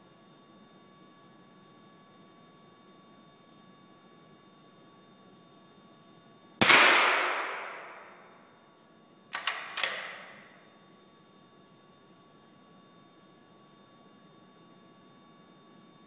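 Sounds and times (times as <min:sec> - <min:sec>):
rifle shot ringing: 0:06.6 - 0:08.3
sharp clicks: 0:09.3 - 0:10.4.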